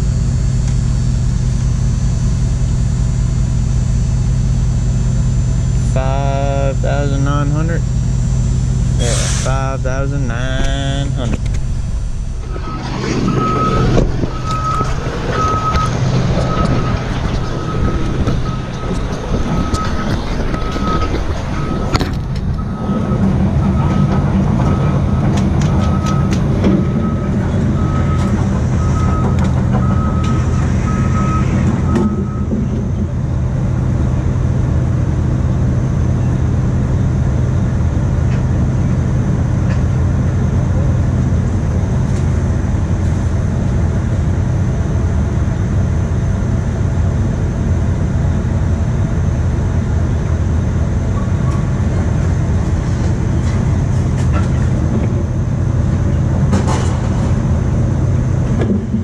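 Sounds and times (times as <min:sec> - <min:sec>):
backup alarm beeping: 0:00.0 - 0:33.0
vehicle engine rumbling: 0:00.0 - 0:59.0.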